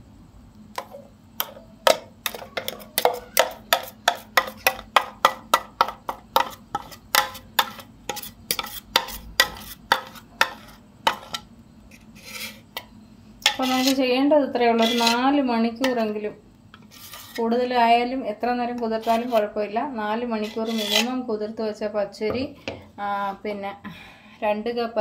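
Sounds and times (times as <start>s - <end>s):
metal spoon scraping steel jar: 1.4s - 4.8s, 6.4s - 12.6s, 13.4s - 14.1s, 14.7s - 16.1s, 16.8s - 17.5s, 18.8s - 19.6s, 20.4s - 21.2s.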